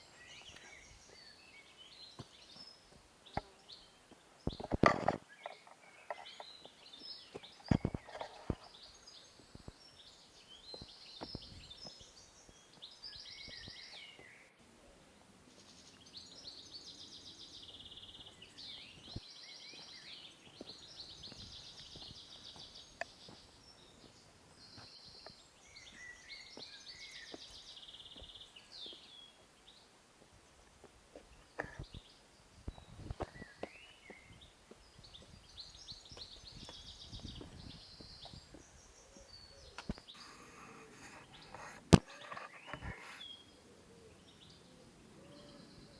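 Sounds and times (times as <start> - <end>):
forest birds singing: 0.0 - 45.9
footsteps and poles on rock: 4.1 - 14.4, 18.3 - 29.3, 32.6 - 38.7.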